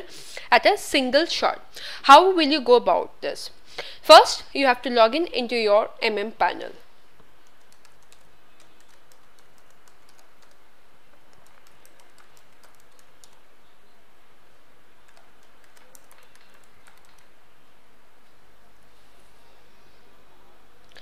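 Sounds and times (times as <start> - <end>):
typing on computer keyboard: 7.4 - 10.6, 11.3 - 13.4, 15.1 - 17.3.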